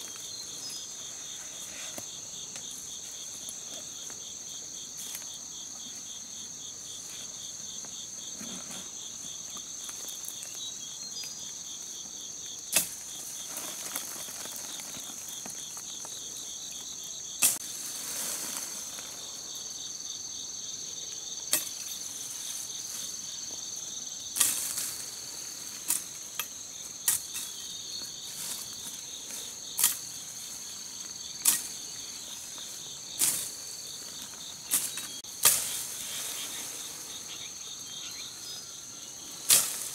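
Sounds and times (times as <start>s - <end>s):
insects droning: 0.0s - 39.9s
leaves rustling: 12.8s - 20.0s, 24.3s - 39.9s.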